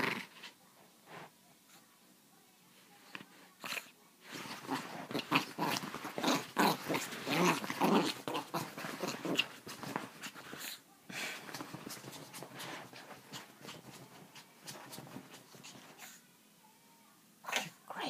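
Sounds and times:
small dog growling: 0:00.0 - 0:00.5, 0:03.6 - 0:16.2
bedding rustling: 0:04.2 - 0:16.2.

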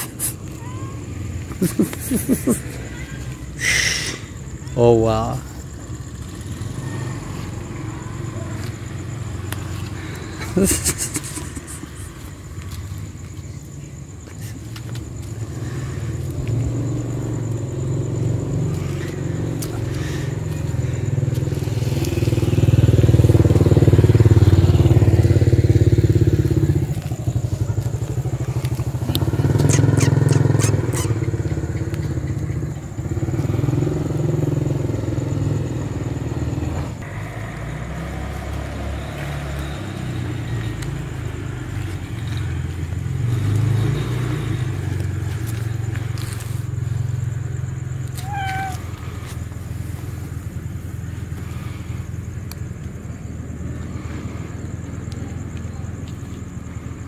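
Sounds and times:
motorbike engine rumble: 0:00.0 - 0:57.0.

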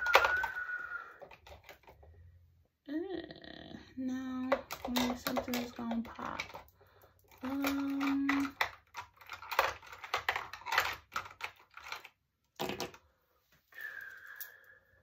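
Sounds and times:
plastic makeup items clattering: 0:00.0 - 0:02.2, 0:04.1 - 0:13.1.

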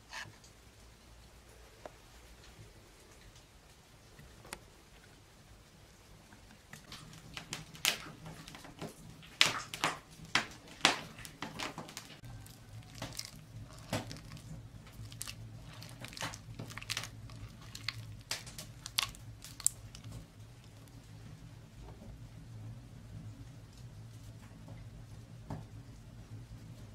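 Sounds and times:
hands squelching soft butter: 0:06.7 - 0:21.0.

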